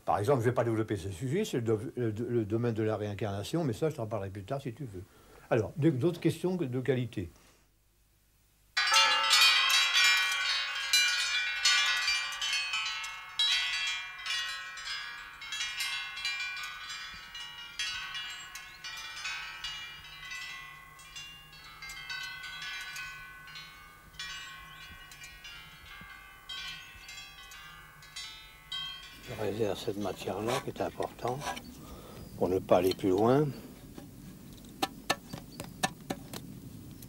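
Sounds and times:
metal chimes ringing: 8.8 - 33.6.

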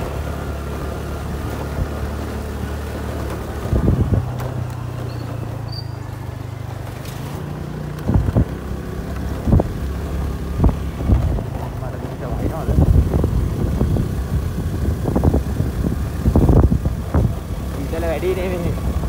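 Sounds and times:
small vehicle engine humming: 0.0 - 19.0
wind buffeting microphone: 3.4 - 4.9, 7.9 - 19.0.

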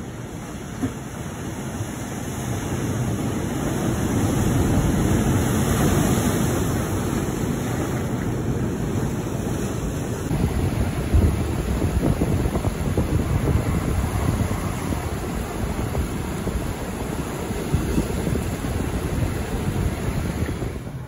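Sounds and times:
surf breaking on rocks: 0.4 - 21.0
wind on microphone: 10.0 - 21.0.

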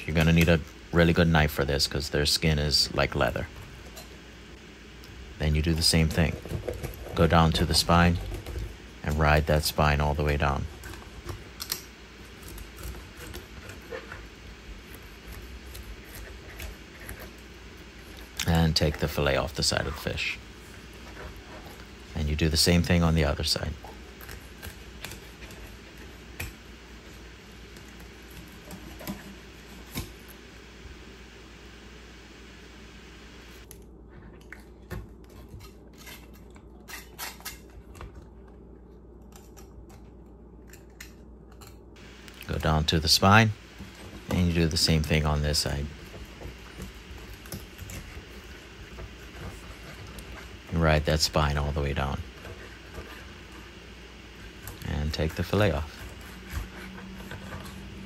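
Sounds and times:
knife clicking and scraping fish: 11.6 - 13.9.

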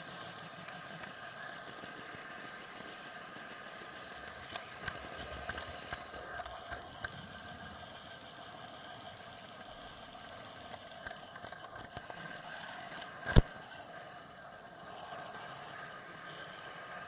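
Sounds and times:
model train motor whine: 0.0 - 17.0
wheels clicking on track: 2.0 - 12.3.

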